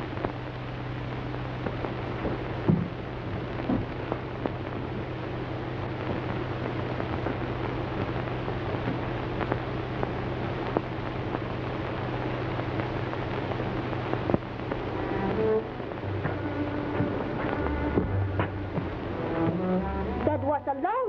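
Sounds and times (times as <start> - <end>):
low hum: 0.0 - 20.8
film soundtrack hiss: 0.0 - 21.0
clicks and pops: 8.0 - 11.9, 12.5 - 20.3.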